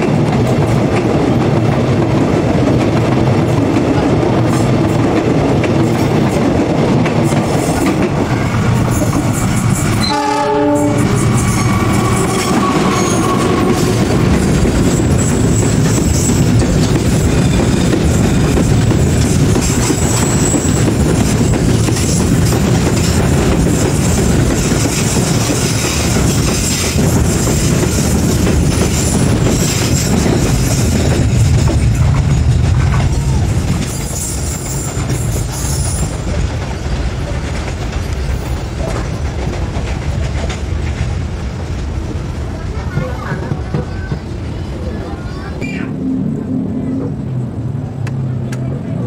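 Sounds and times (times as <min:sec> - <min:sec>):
train wheels clacking over rail joints: 0:00.0 - 0:44.4
high wheel squeals: 0:08.9 - 0:16.5, 0:19.9 - 0:20.9.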